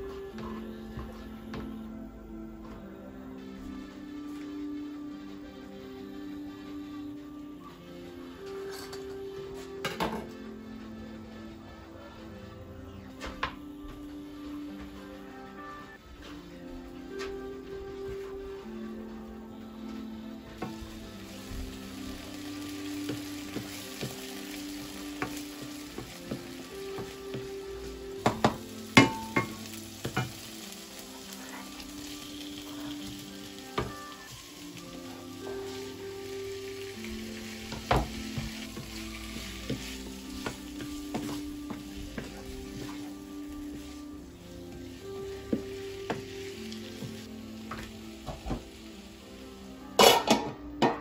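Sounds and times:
soft background music: 0:00.0 - 0:51.0
onions sizzling in oil: 0:13.4 - 0:50.6
wooden spoon stirring in pan: 0:14.0 - 0:50.2.

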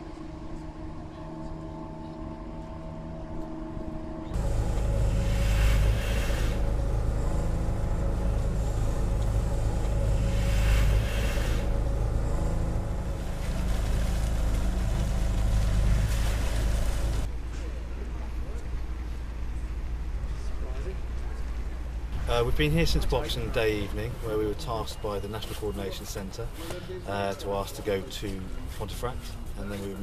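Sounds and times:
outboard motor droning: 0:00.1 - 0:17.3
loud low rumble: 0:00.8 - 0:17.3
surges of hiss: 0:04.4 - 0:06.8, 0:10.1 - 0:11.7.

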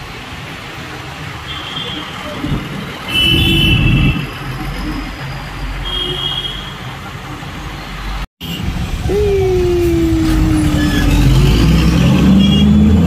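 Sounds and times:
bus engine: 0:00.0 - 0:13.0
road noise: 0:00.0 - 0:13.0
loud held falling tone: 0:09.0 - 0:12.2.

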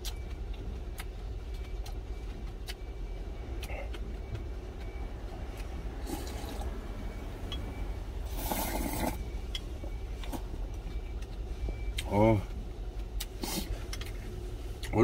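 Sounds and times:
steady low hum: 0:00.0 - 0:15.0
person slurping noodles: 0:08.3 - 0:09.2.

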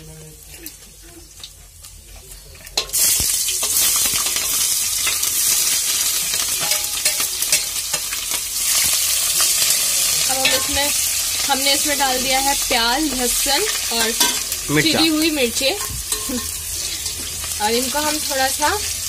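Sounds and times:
metal spatula scraping pot: 0:02.6 - 0:09.5, 0:10.3 - 0:11.4, 0:15.7 - 0:17.4
vegetables sizzling in hot oil: 0:02.6 - 0:19.0.

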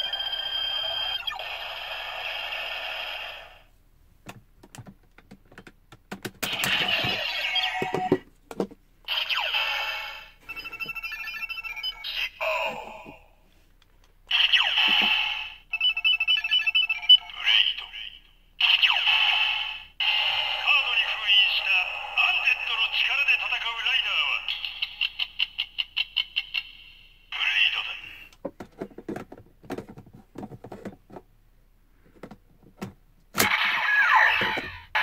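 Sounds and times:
toy sound effect bursts: 0:14.3 - 0:15.6
toy electronic music: 0:20.2 - 0:26.9.

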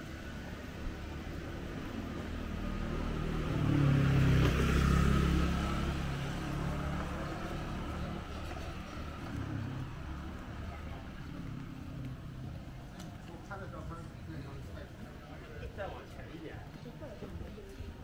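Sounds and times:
motor vehicle passing by: 0:00.1 - 0:13.4.

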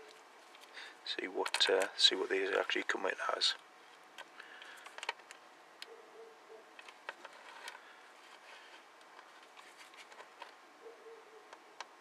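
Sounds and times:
handling rustle: 0:06.7 - 0:10.6.

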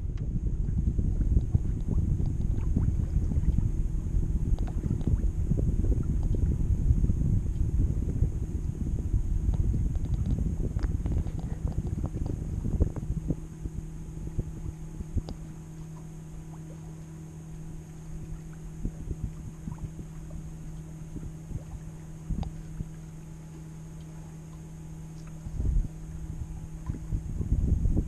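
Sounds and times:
water knocking against hull: 0:00.0 - 0:03.8, 0:04.4 - 0:06.6, 0:09.4 - 0:13.4
steady low hum: 0:00.0 - 0:28.0
wind buffeting microphone: 0:00.0 - 0:28.0.

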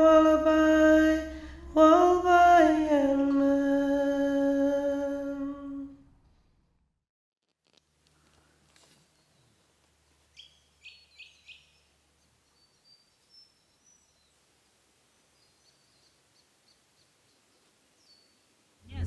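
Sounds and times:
bird chirps: 0:09.0 - 0:09.7, 0:10.3 - 0:14.4, 0:15.1 - 0:18.6.

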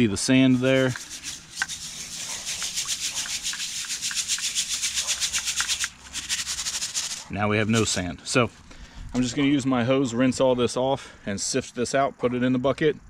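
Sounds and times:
sand sifting through mesh: 0:00.0 - 0:08.5
soil rattling in a shaken sieve: 0:00.4 - 0:08.1.

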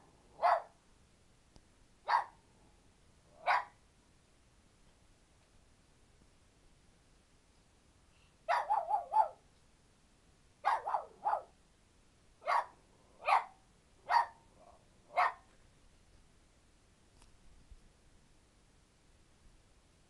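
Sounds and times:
small dog barking: 0:00.3 - 0:00.8, 0:02.0 - 0:02.4, 0:03.4 - 0:03.8, 0:08.4 - 0:09.5, 0:10.6 - 0:11.6, 0:12.4 - 0:15.5.

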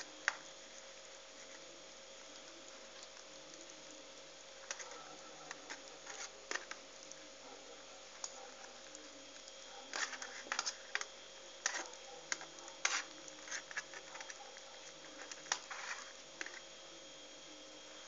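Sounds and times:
leaves rustling: 0:00.0 - 0:16.8
small clicks and taps in metal pan: 0:04.6 - 0:07.2, 0:09.3 - 0:14.4.

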